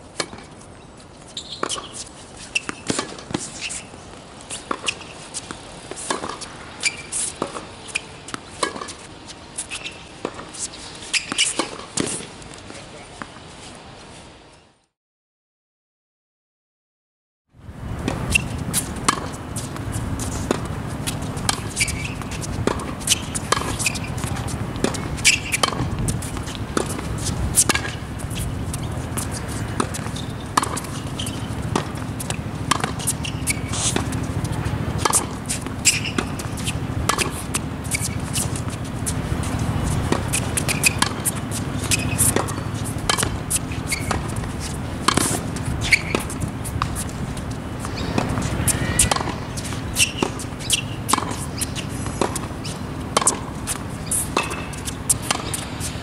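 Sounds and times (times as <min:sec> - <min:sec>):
tennis ball struck by racket: 0:00.2 - 0:00.5, 0:01.4 - 0:03.9, 0:04.6 - 0:12.3, 0:17.8 - 0:56.0
balls bouncing on hard court: 0:17.8 - 0:56.0.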